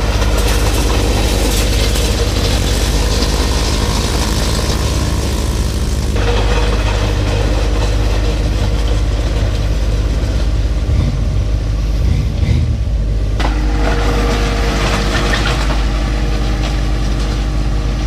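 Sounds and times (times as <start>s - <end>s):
blade scraping gravel: 0.0s - 10.6s
tractor diesel engine running: 0.0s - 18.0s.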